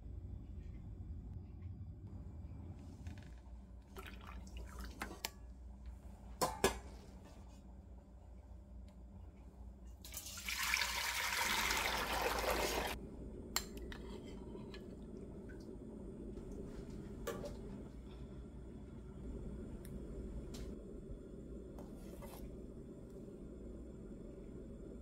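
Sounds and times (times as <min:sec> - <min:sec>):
liquid pouring into metal pot: 0:10.0 - 0:13.0.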